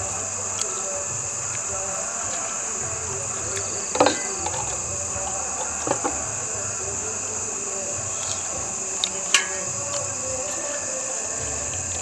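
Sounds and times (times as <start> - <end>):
crickets chirring: 0.0 - 12.0.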